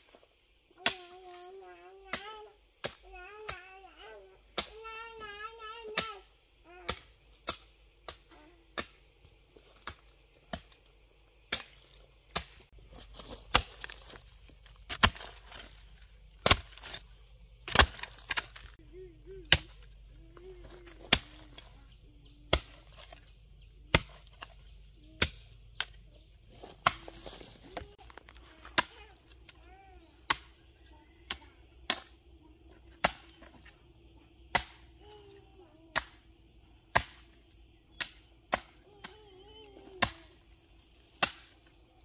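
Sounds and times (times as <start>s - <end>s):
hoe chopping into soil: 11.4s - 18.8s.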